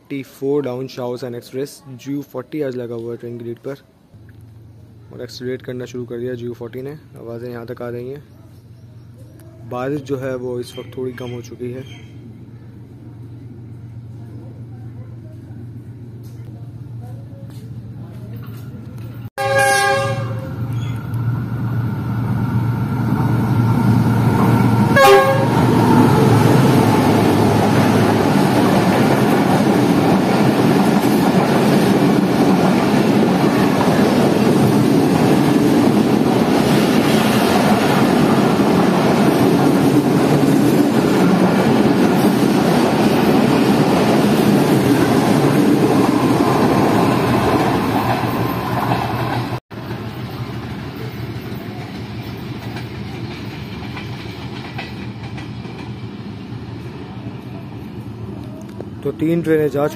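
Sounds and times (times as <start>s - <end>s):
train coaches rumbling past: 8.6s - 59.9s
train horn: 19.4s - 20.6s, 24.9s - 25.6s.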